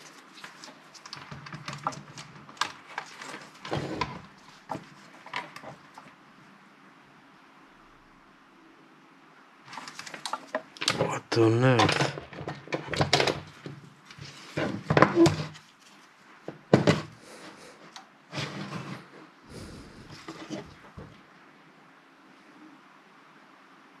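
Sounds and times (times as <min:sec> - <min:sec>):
knocks and scrapes in metal case: 0:16.5 - 0:17.2.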